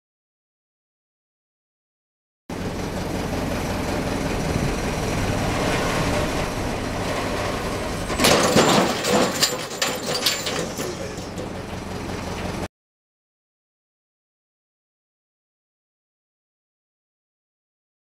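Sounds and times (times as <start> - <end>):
crane engine running: 2.5 - 12.7
rattling and clattering: 4.4 - 12.7
sudden crack: 7.0 - 9.7.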